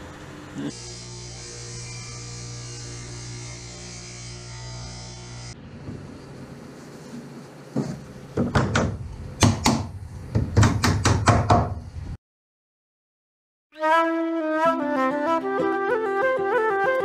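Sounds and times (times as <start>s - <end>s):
wood knocking on wood: 7.8s - 11.7s.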